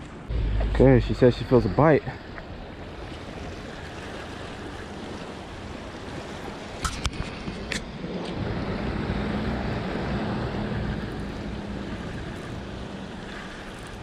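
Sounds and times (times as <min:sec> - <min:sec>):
low steady hum: 0:00.0 - 0:06.1
surf washing against rocks: 0:00.6 - 0:14.0.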